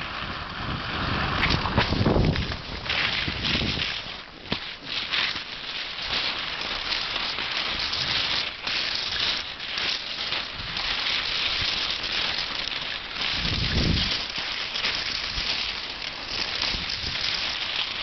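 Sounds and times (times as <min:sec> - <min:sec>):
skis hissing over snow: 0:00.0 - 0:18.0.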